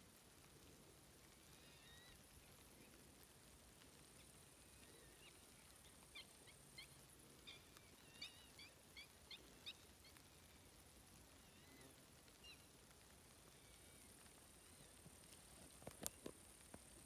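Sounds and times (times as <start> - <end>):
bird chirping: 4.2 - 10.6.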